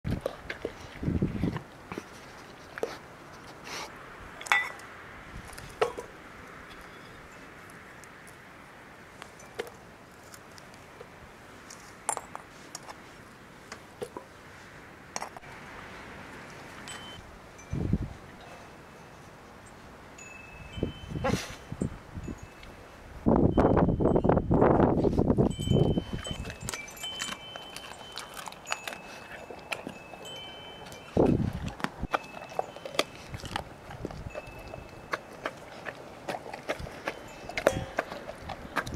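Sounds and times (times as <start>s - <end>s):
wind buffeting microphone: 0.0s - 1.7s, 17.4s - 18.4s, 20.6s - 27.4s, 31.0s - 32.2s, 33.1s - 38.9s
wind hiss on microphone: 0.8s - 1.6s, 17.2s - 18.4s, 19.4s - 27.1s
short high ringing tones: 16.9s - 17.9s.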